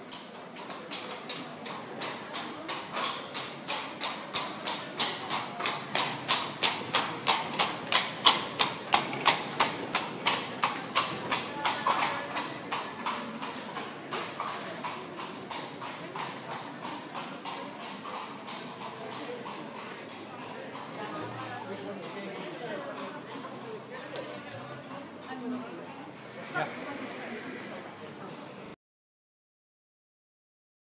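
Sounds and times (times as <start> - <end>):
horse hooves clip-clopping: 0.0 - 28.6.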